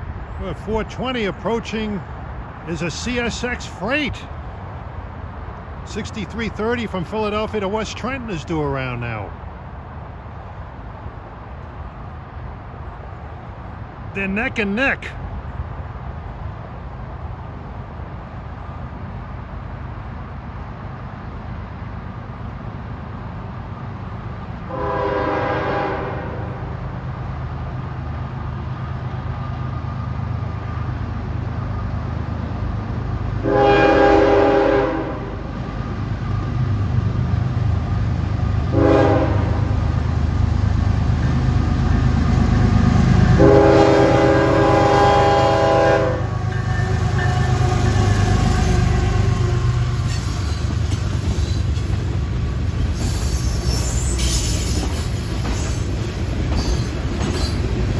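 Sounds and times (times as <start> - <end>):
low rumble of train: 0.0 - 57.9
train horn blowing: 24.7 - 26.7, 33.4 - 35.4, 38.7 - 39.8, 43.3 - 50.0.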